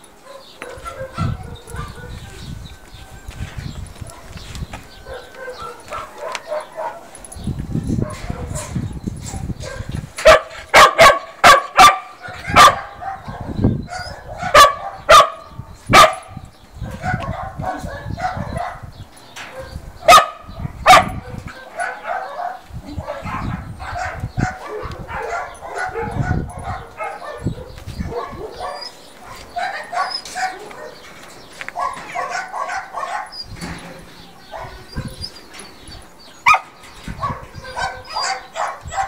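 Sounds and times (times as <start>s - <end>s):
dog barking: 0.2s - 2.4s, 5.0s - 7.1s, 9.6s - 18.9s, 19.5s - 31.1s, 31.8s - 33.4s, 34.4s - 35.3s, 36.4s - 39.0s
dog whining and yipping: 37.2s - 39.0s.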